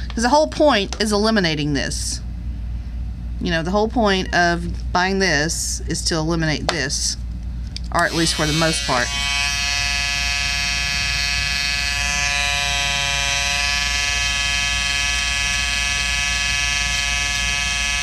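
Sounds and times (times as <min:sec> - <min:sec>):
electric shaver buzzing: 0:08.0 - 0:18.0.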